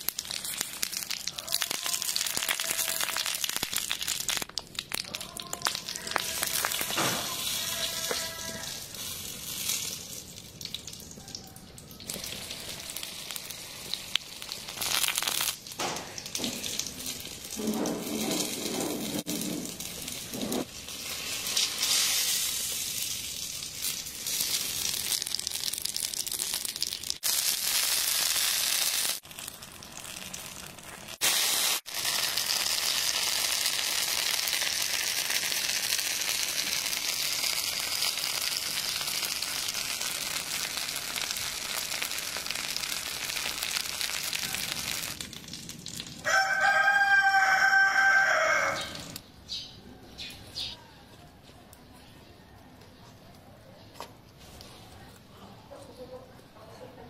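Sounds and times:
pepper sizzling on hot stone: 0.0s - 11.2s, 12.0s - 49.2s
rooster crowing: 11.2s - 12.2s, 46.2s - 49.2s.

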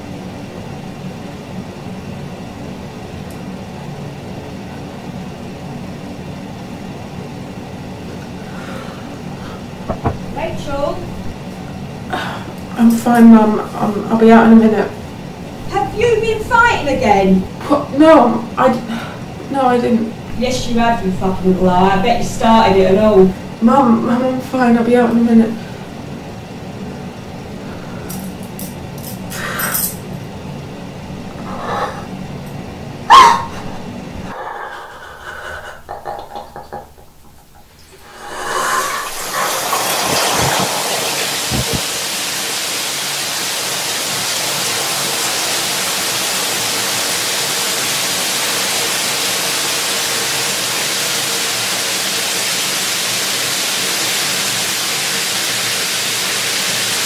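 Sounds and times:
low room hum: 0.0s - 57.0s
knocks and sharp bang: 9.9s - 10.4s
steady hiss of noise: 33.9s - 57.0s.

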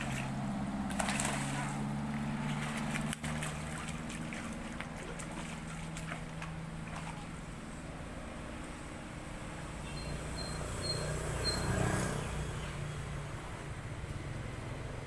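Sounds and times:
fish splashing at water surface: 0.0s - 7.7s
low motor hum: 0.0s - 15.0s.

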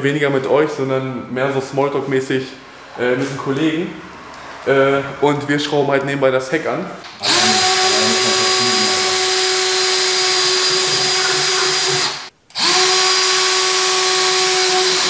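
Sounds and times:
cordless drill whining: 7.2s - 15.0s.

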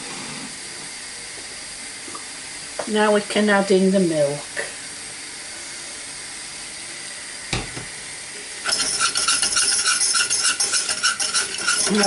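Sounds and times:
roux sizzling in a saucepan: 0.0s - 12.0s
wire whisk beating against pan: 8.6s - 12.0s.

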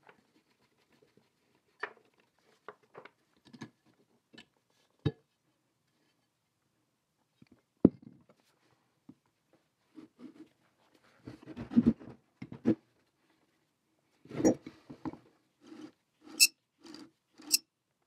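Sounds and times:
metal parts scraping: 15.7s - 17.6s.

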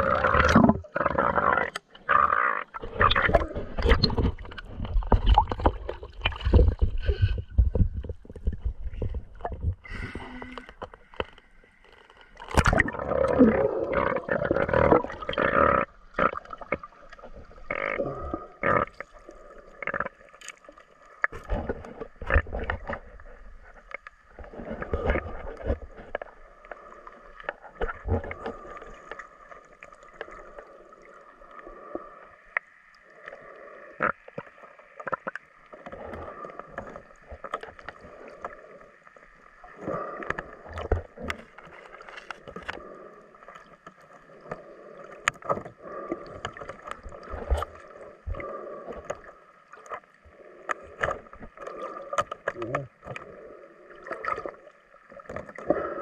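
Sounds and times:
underwater knocks and thumps: 2.8s - 11.4s, 12.4s - 13.4s, 21.2s - 26.3s.

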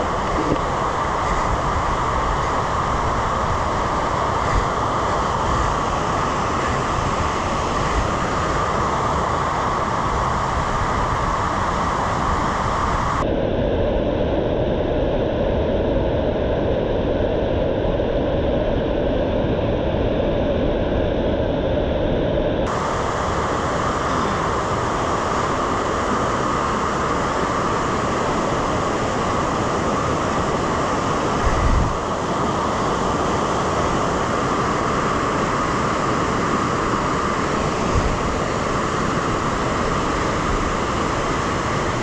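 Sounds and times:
loud rushing noise: 0.0s - 13.3s, 22.6s - 42.0s.

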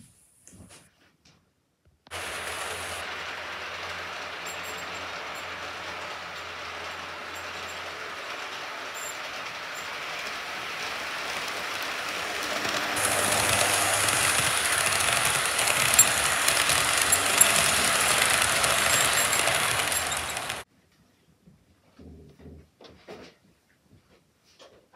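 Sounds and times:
model train wheels rattling: 2.1s - 20.6s.

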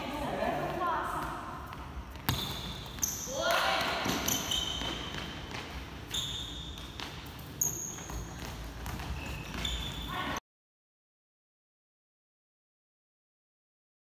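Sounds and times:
sneakers squeaking on court floor: 1.1s - 10.4s.

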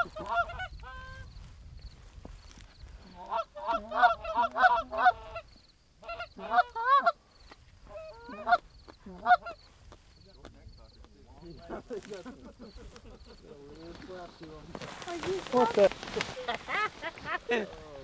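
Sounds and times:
goose honking: 0.0s - 1.3s, 3.1s - 7.2s, 7.9s - 9.6s.

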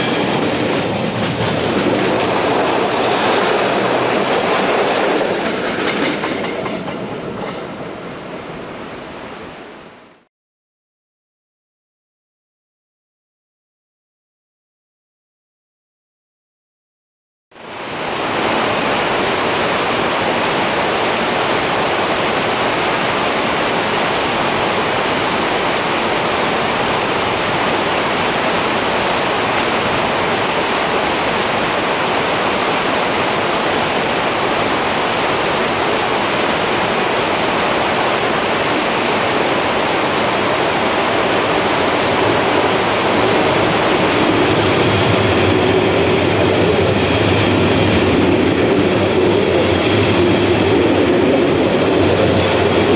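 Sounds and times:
electric train hum and whine: 17.6s - 52.9s
river rushing over boulders: 17.6s - 52.9s.

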